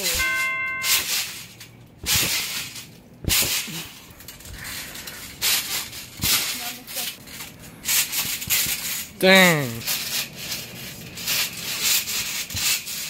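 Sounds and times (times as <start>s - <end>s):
trampoline landing thumps: 2.0s - 4.0s.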